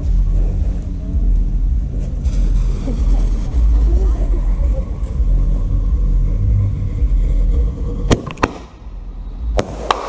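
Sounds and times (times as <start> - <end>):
low rumble: 0.0 - 10.0
firework fountain burning: 8.1 - 10.0
firework cracks: 9.6 - 10.0.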